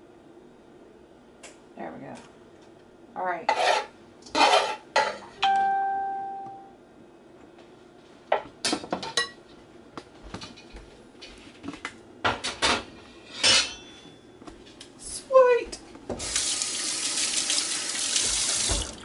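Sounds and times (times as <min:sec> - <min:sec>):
ringing clang: 0:13.4 - 0:14.2.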